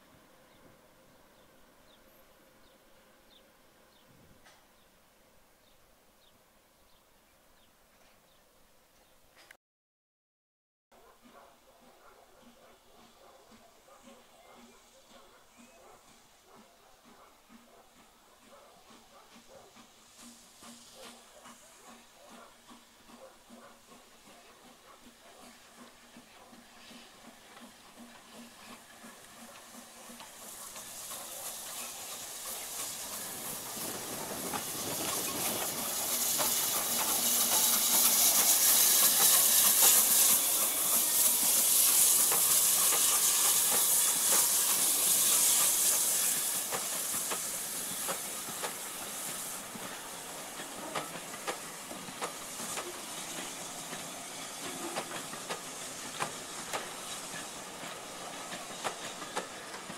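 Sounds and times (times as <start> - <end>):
steam locomotive hissing: 11.2 - 59.9
train wheels clicking over rail joints: 12.5 - 59.9.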